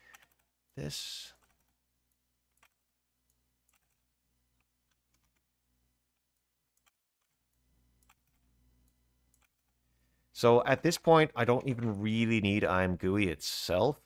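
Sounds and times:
keyboard clicks: 2.5 - 5.5, 6.1 - 9.8.

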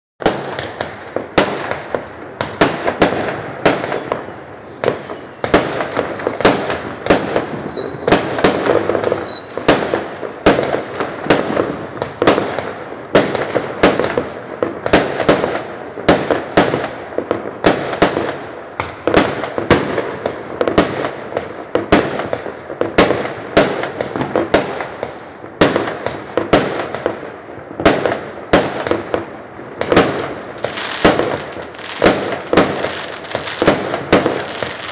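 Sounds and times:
fireworks bangs: 0.2 - 34.9
fireworks crackle: 0.2 - 34.9
falling firework whistles: 3.6 - 12.6, 30.0 - 34.9.

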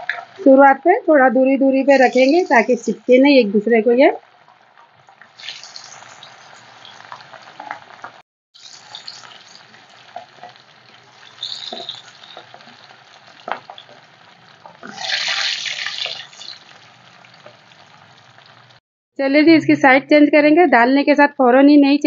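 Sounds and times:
fish deep-frying in oil: 1.7 - 18.8.

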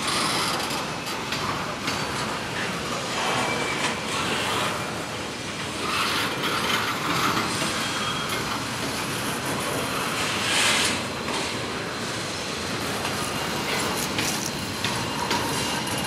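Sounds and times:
high wheel squeal: 3.2 - 5.0, 7.1 - 8.6.

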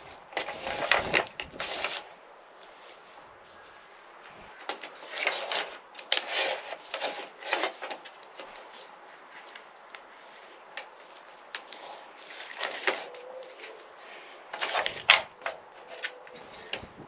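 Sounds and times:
plastic clicks and rubbing: 10.7 - 13.8, 14.5 - 17.0.

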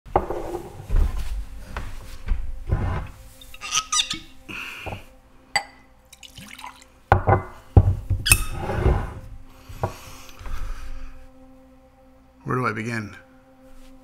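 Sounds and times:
cork squeaking out of bottle: 3.5 - 4.3, 8.2 - 8.6
liquid pouring into glass: 6.1 - 7.0
glass knocking on wooden counter: 7.1 - 8.2.

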